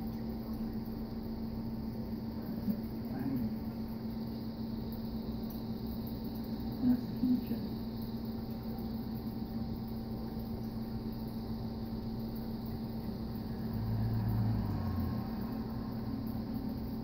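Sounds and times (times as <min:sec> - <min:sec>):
mechanical hum: 0:00.0 - 0:17.0.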